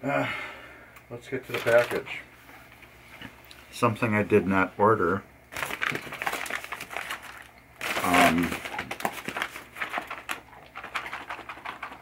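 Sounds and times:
paper mailer crinkling: 0:01.5 - 0:02.0, 0:05.5 - 0:12.0.

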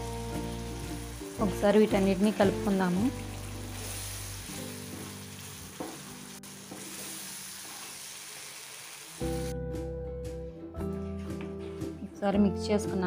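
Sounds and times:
background music: 0:00.0 - 0:07.6, 0:09.2 - 0:13.0
paste sizzling in hot oil: 0:00.0 - 0:09.5.

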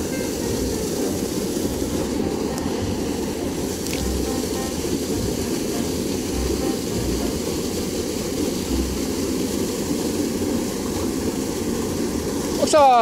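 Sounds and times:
water rushing over weir: 0:00.0 - 0:13.0
low rumbles: 0:01.6 - 0:10.6.

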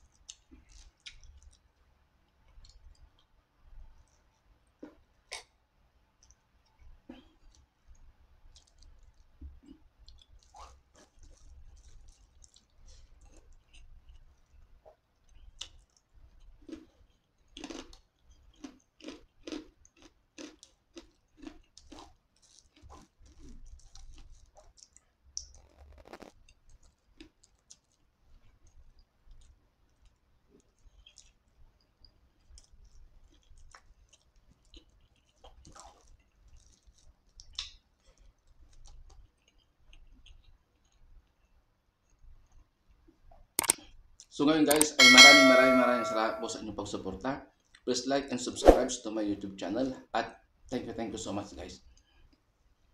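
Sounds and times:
close chewing: 0:00.0 - 0:05.6, 0:06.2 - 0:42.7
wet mouth clicks and lip smacks: 0:00.1 - 0:01.7, 0:21.4 - 0:28.0, 0:32.0 - 0:41.1, 0:43.3 - 0:44.9.

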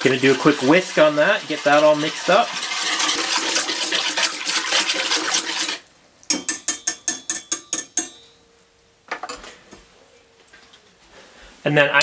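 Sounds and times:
whisk beating in metal bowl: 0:00.0 - 0:08.2
whisk clinking against bowl: 0:06.3 - 0:08.4.

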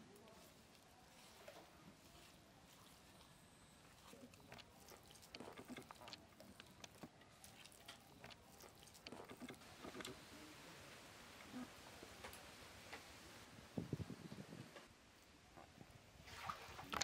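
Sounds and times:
soft squishing of mashing food: 0:00.0 - 0:13.1.

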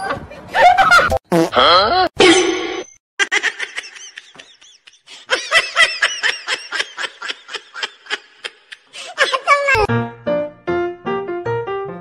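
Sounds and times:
person laughing: 0:03.2 - 0:09.9.

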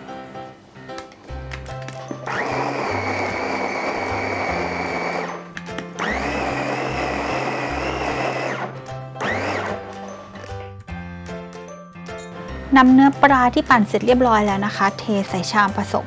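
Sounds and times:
electric food chopper whirring: 0:02.1 - 0:10.4.

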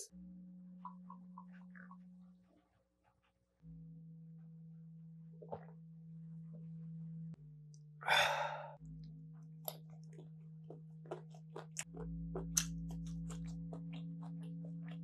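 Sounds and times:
wet mouth clicks of eating: 0:09.6 - 0:15.0.

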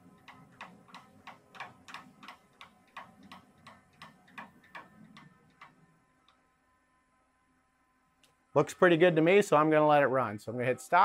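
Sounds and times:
hand wheel clicking: 0:00.0 - 0:05.8.

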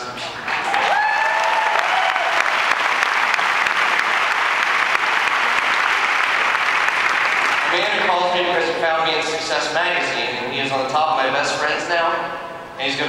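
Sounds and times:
audience applauding: 0:00.4 - 0:08.1.

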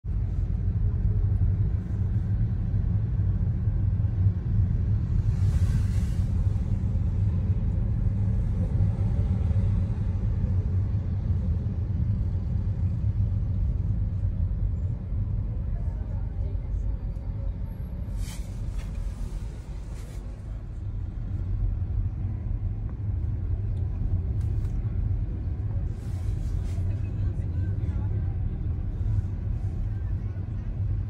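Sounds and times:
car engine and tyres rumbling: 0:00.0 - 0:31.0
brief hiss: 0:18.1 - 0:19.1.

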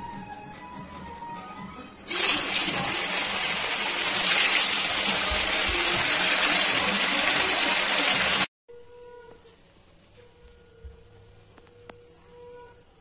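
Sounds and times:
food deep-frying in hot oil: 0:02.1 - 0:08.5.

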